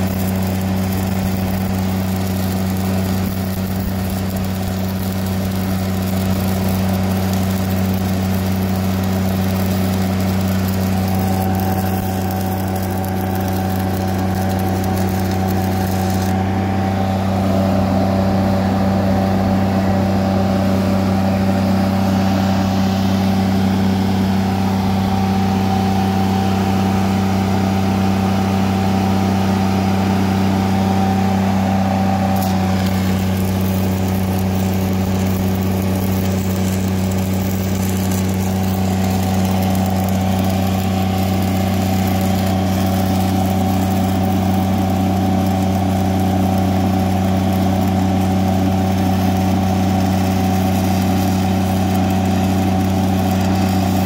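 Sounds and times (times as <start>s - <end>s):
welding arc crackling and hissing: 0.0s - 16.6s, 31.9s - 54.0s
engine running: 0.0s - 54.0s.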